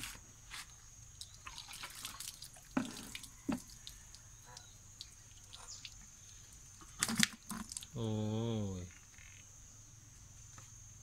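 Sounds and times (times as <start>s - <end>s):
eels splashing in water: 1.2s - 6.0s, 6.9s - 7.9s.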